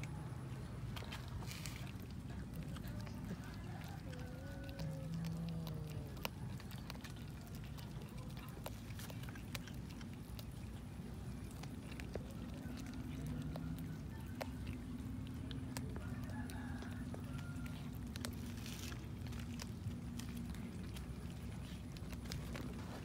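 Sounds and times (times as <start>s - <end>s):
cats chewing raw fish: 0.0s - 23.0s
low steady hum: 0.0s - 23.0s.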